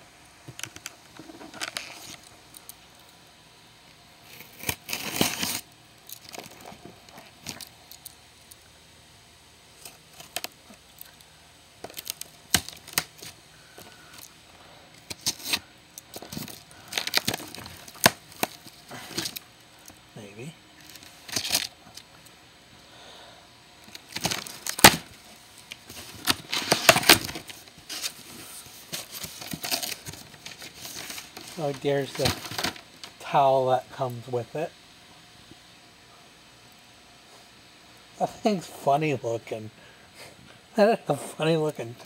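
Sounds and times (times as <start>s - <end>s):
packing tape tearing: 0.6s - 2.8s, 4.2s - 8.1s, 9.8s - 11.2s, 11.8s - 14.3s, 15.0s - 20.0s, 20.8s - 22.1s, 23.9s - 33.1s.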